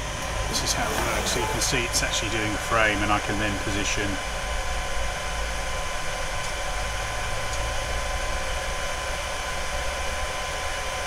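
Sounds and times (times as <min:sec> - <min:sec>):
laser machine whirring: 0:00.2 - 0:02.5.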